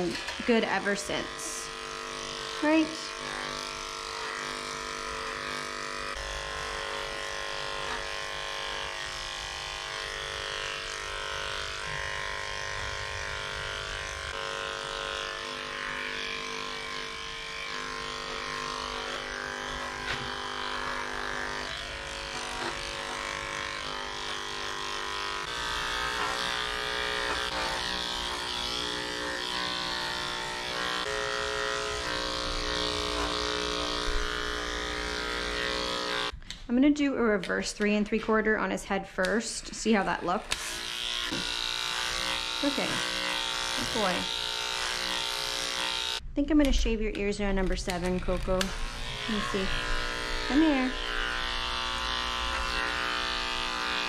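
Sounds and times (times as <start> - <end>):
electric clippers running: 0.0 - 36.4, 39.8 - 46.2, 47.7 - 54.0.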